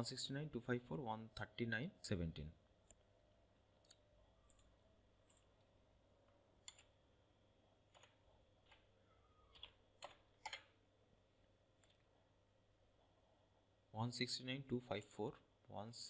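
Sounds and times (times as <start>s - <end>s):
keyboard keystrokes: 9.5s - 10.7s.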